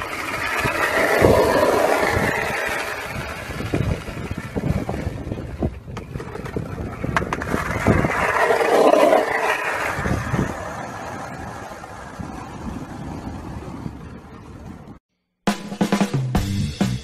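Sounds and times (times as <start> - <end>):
skateboard wheels rolling on asphalt: 0.0 - 15.0
wind buffeting microphone: 0.0 - 15.0
skateboard clicks: 5.6 - 12.2.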